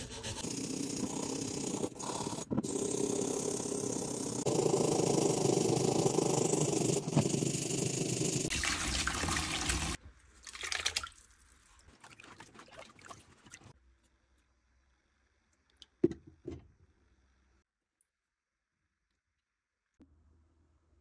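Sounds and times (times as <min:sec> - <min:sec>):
water sloshing and splashing: 0:08.5 - 0:13.8.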